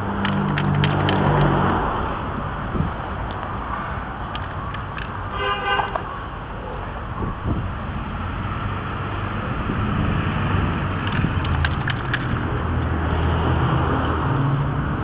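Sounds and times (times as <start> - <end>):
street traffic noise: 0.0 - 15.0
vehicle engine rumbling: 0.0 - 15.0.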